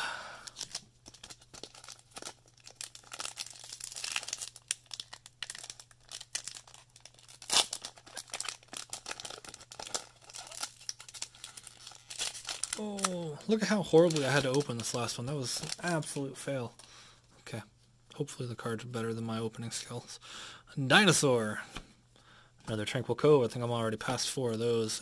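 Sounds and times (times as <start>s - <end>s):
foil wrapper tearing and crinkling: 0.4s - 16.2s.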